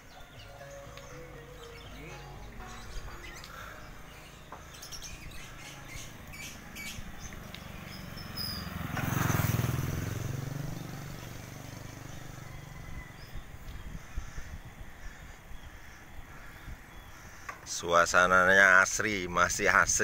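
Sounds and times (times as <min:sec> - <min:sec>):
small motorcycle passing by: 0:04.8 - 0:14.0.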